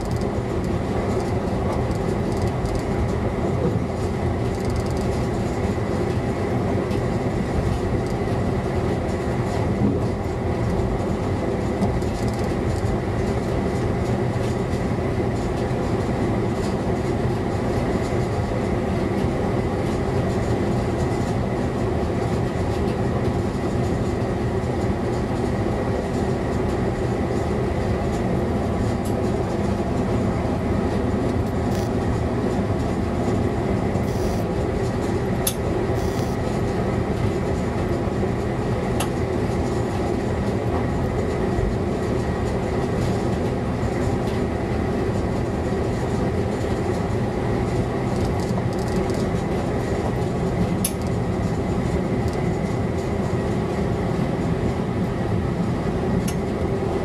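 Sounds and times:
railcar engine drone: 0.0 - 57.0
wheel and rail noise: 26.6 - 44.5.

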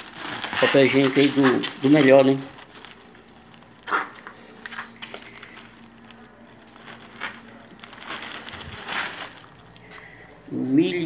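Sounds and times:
plastic bag rustling: 0.0 - 10.4
faint steady buzz: 2.5 - 11.0.

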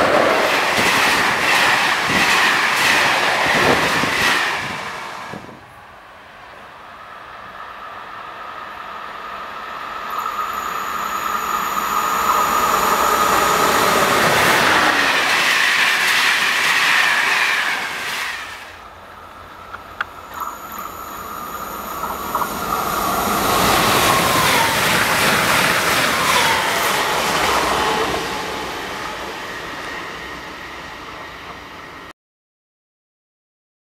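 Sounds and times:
train wheels rolling on rails: 0.0 - 32.1
train whine dropping in pitch: 7.4 - 18.8, 20.4 - 31.0.

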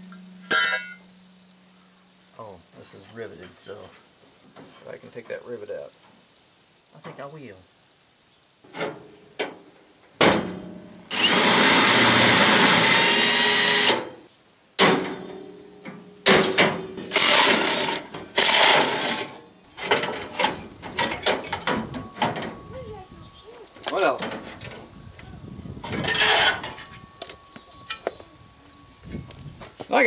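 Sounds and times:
cordless drill drilling metal: 11.1 - 14.1, 17.1 - 20.2.

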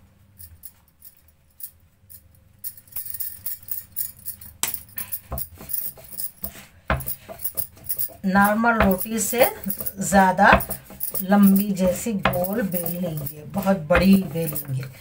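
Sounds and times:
bangles clinking: 0.4 - 15.0
rolling pin knocking on board: 5.3 - 14.7.

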